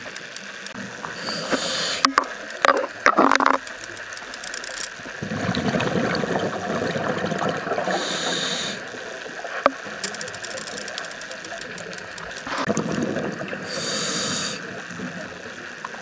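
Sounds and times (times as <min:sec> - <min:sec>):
sharp clicks: 0:00.0 - 0:00.8, 0:01.5 - 0:05.0, 0:10.0 - 0:12.7
regulator inhalation hiss: 0:01.0 - 0:02.3, 0:07.9 - 0:09.0, 0:13.6 - 0:14.8
exhaled bubbles rumbling: 0:05.0 - 0:10.0, 0:11.4 - 0:16.0
gurgling bursts: 0:05.2 - 0:08.9, 0:12.4 - 0:15.2.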